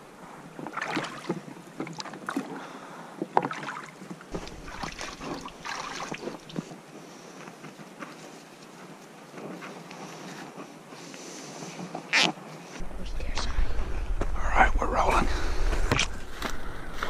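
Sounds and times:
oars splashing in water: 0.5 - 8.7.

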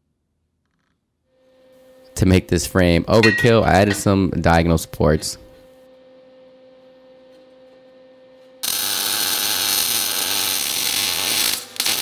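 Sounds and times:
welder arc crackling: 8.6 - 12.0.

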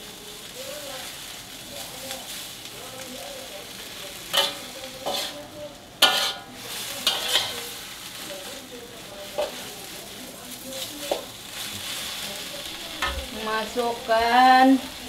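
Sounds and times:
vegetables sizzling in a wok: 0.0 - 15.0
metal spatula scraping a wok: 4.2 - 8.6.

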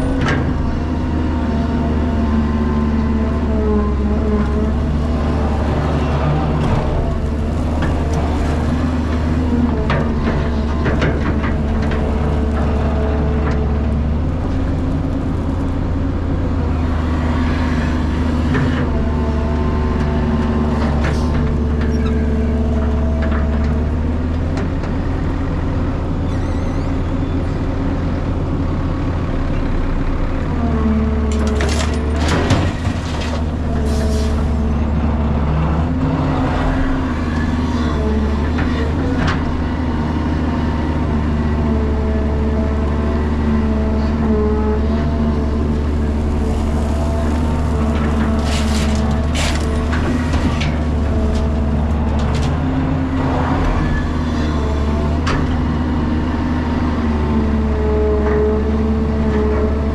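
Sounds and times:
excavator diesel engine running: 0.0 - 59.9
soil dropping into truck bed: 46.8 - 50.9.

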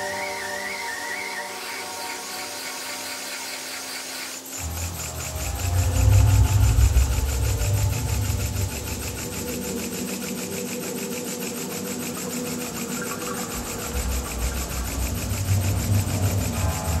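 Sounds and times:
model steam engine chuffing: 2.5 - 17.0
low rumble: 4.6 - 9.7, 13.6 - 17.0.

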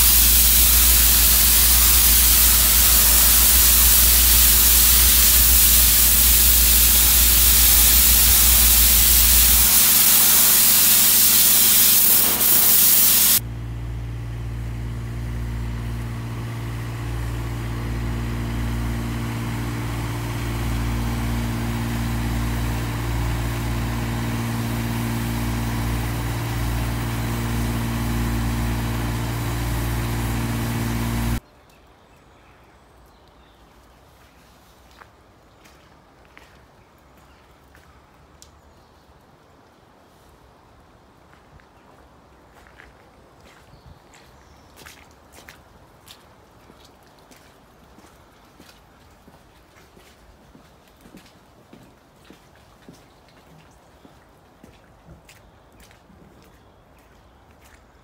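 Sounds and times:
steam lance spraying hiss: 0.0 - 13.4, 16.6 - 31.4
pulsing machine hum: 0.0 - 31.4.

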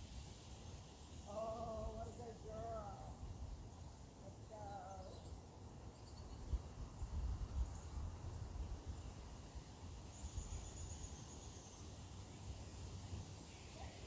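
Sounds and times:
wind rumble on microphone: 6.2 - 9.4.

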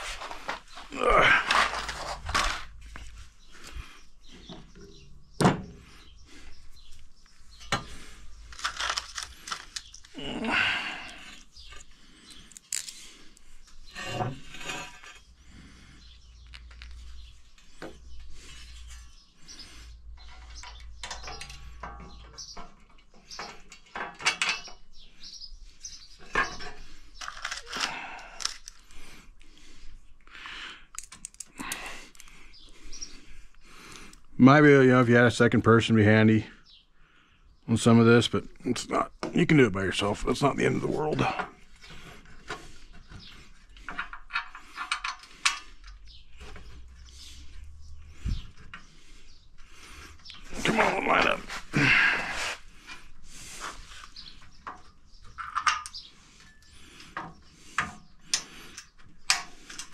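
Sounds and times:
metal parts clinking and rattling: 0.1 - 2.8, 7.6 - 10.2, 11.6 - 13.4, 20.2 - 24.9, 26.3 - 28.9, 30.9 - 32.3, 43.8 - 46.6, 54.1 - 59.9.

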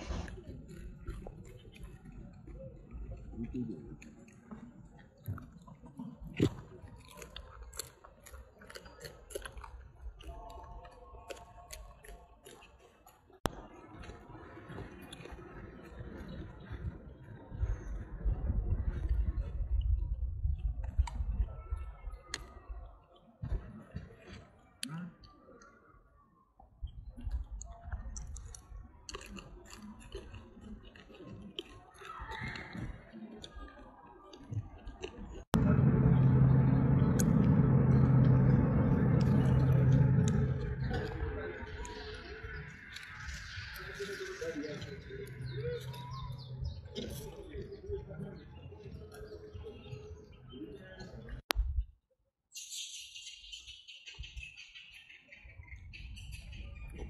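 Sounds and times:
monkey chewing on a stem: 3.9 - 13.3, 27.2 - 33.6
low rumble: 35.6 - 48.9.

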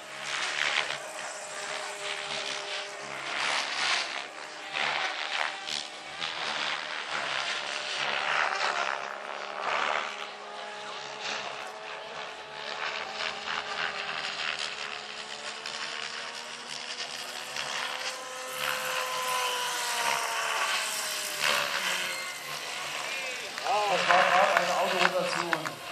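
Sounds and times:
model helicopter whine: 0.0 - 25.9.

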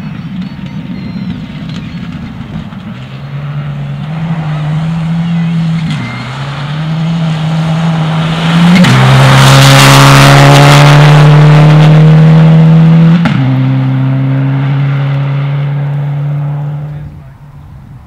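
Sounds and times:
gear changes: 0.4 - 12.0
rally car engine revving past: 2.0 - 17.2.

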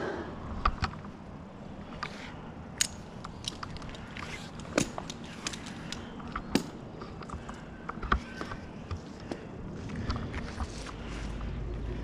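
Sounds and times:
climbing hardware clicking and knocking: 2.7 - 10.7.

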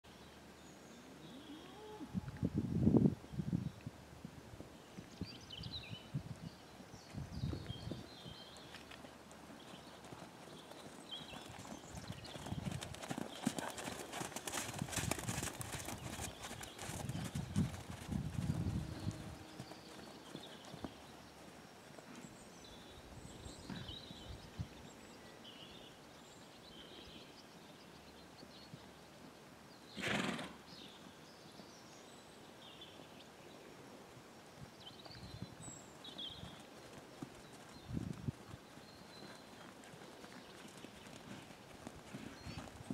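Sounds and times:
birds chirping: 4.9 - 14.4, 18.7 - 29.1
horse hoofbeats on sand: 7.5 - 21.4, 36.0 - 42.9.

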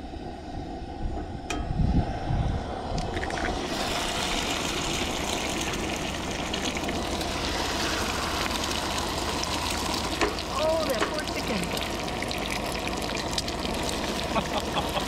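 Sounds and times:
eggs sizzling in hot oil: 3.1 - 15.0.

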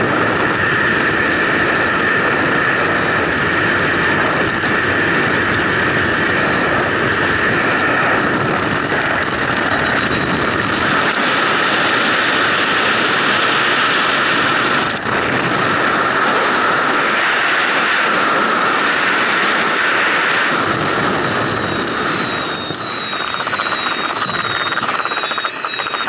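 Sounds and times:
freefall wind rushing: 0.0 - 25.7
thin high whistle: 22.2 - 26.0.

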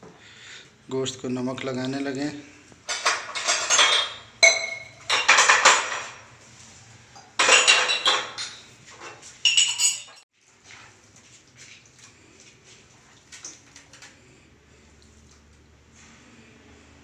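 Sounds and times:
steel kitchenware clanking: 2.8 - 6.4, 7.2 - 10.2.

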